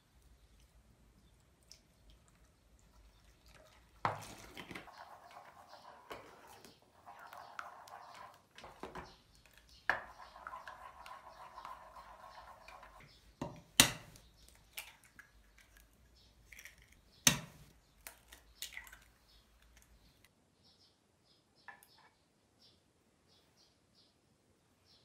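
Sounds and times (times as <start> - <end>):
thick soup being stirred: 0.0 - 20.2
eggs cracking on bowl rim: 8.7 - 20.0
egg dripping into bowl: 16.6 - 20.0.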